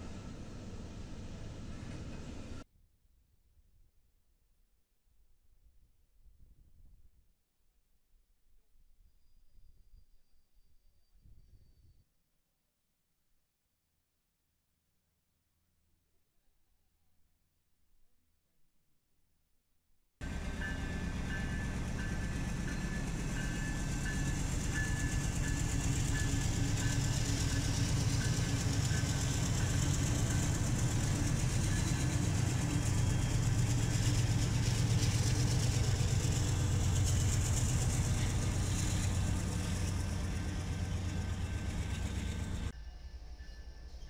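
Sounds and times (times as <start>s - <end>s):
diesel locomotive engine rumble: 0.0s - 2.6s, 20.2s - 42.7s
wheels on rail: 0.0s - 2.6s, 20.2s - 42.7s.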